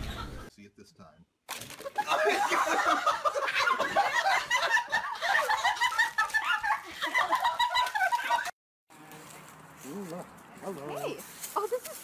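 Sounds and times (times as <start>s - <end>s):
people cackling with laughter: 1.8s - 8.5s.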